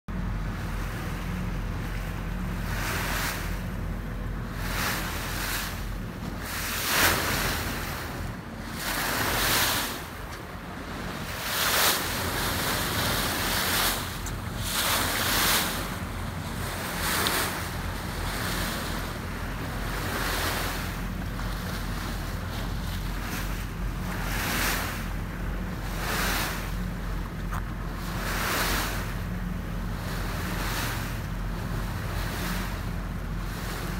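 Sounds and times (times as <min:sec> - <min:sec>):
boat engine drone: 0:00.1 - 0:33.9
water splashing along boat bow: 0:00.1 - 0:33.9
wind buffeting microphone: 0:00.2 - 0:33.9.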